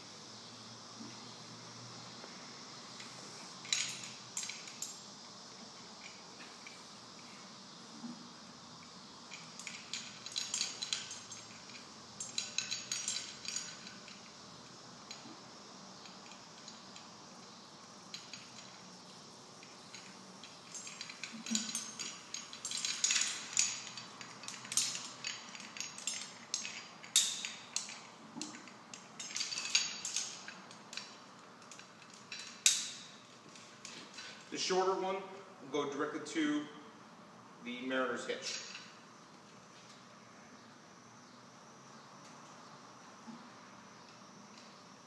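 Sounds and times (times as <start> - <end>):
metal carabiners clinking: 3.0 - 7.3, 9.3 - 14.4, 18.1 - 18.9, 19.6 - 34.8, 37.9 - 39.0.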